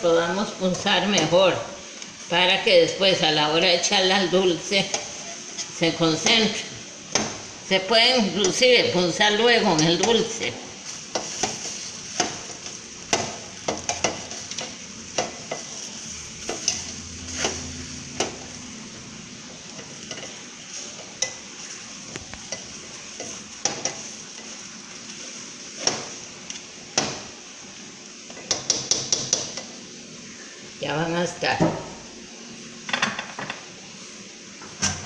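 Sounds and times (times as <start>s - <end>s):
bread sizzling in oil: 0.0s - 34.8s
metal utensils tapping a pan: 11.1s - 15.8s, 19.8s - 20.4s, 22.4s - 24.5s, 28.3s - 29.7s.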